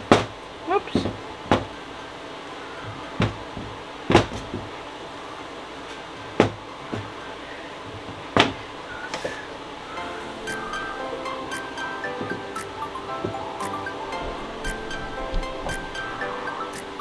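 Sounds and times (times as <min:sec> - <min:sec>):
music: 0:09.9 - 0:17.0.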